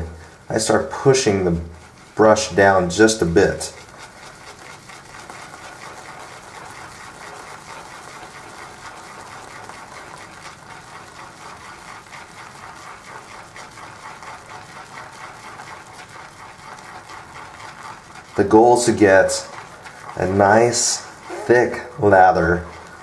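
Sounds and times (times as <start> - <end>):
shaving brush swishing lather: 0.0 - 23.0.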